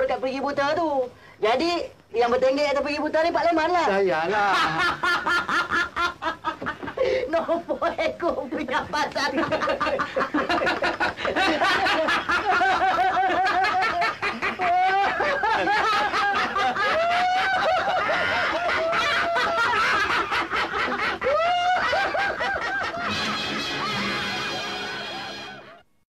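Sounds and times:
men laughing heartily: 4.3s - 7.9s, 8.8s - 25.8s.

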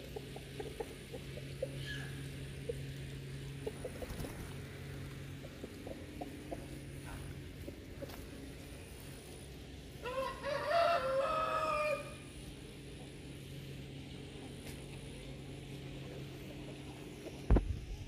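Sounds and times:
steady low hum: 0.0s - 18.0s
rooster crowing: 10.0s - 12.3s.

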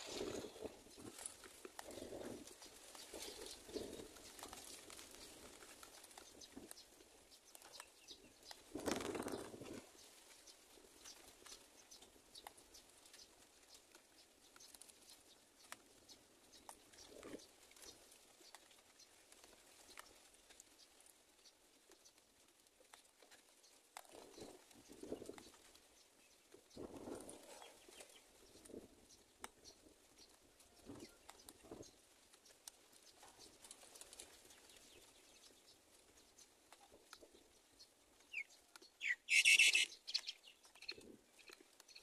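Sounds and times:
rustling: 0.0s - 11.8s.

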